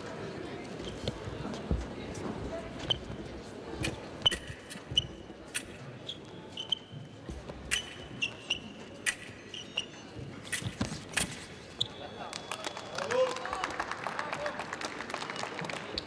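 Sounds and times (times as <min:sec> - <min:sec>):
fencing blades clashing: 0:07.7 - 0:11.6.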